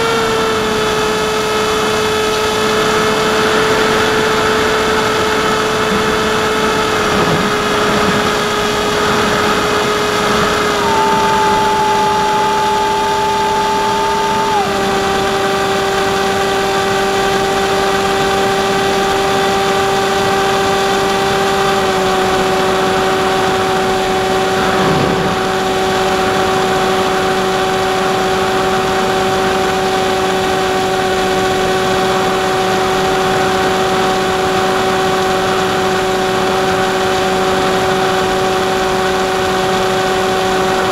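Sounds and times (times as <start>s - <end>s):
electric motor whine: 0.0s - 40.9s
wind rush: 6.7s - 15.4s, 23.1s - 27.4s.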